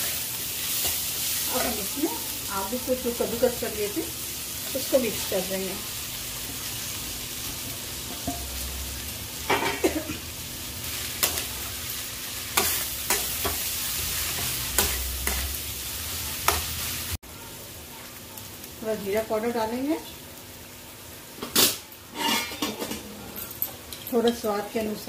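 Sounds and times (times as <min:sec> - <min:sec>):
pan sizzling: 0:00.0 - 0:22.6
spatula scraping a pan: 0:12.5 - 0:15.5, 0:22.1 - 0:22.8.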